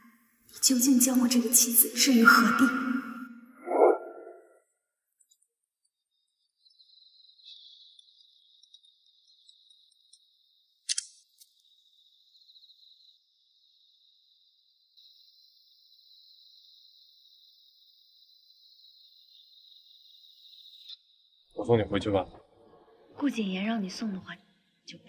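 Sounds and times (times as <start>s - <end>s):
crickets chirring: 5.3s - 22.2s, 23.1s - 24.8s
sharp click: 10.8s - 11.2s.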